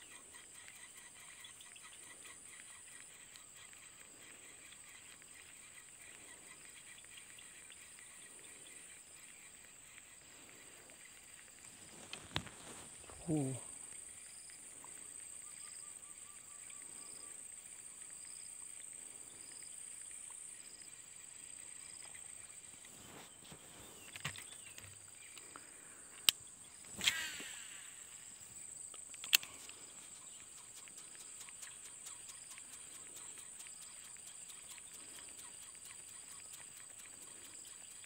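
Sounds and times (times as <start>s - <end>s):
high-pitched insect drone: 0.0s - 23.1s, 23.8s - 38.0s
faint chirp: 0.0s - 38.0s
sharp clicks: 24.1s - 28.2s, 28.8s - 38.0s
short swish: 26.9s - 28.0s.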